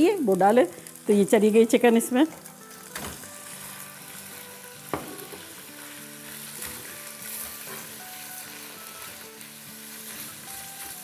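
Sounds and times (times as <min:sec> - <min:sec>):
chicken sizzling in oil: 0:00.0 - 0:11.0
soft background music: 0:00.0 - 0:11.0
spatula stirring in pan: 0:05.6 - 0:11.0.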